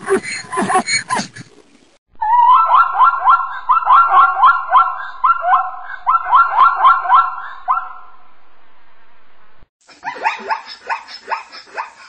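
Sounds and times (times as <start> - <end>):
faint steady hiss: 1.3 - 2.0
zebra barking: 2.5 - 8.1.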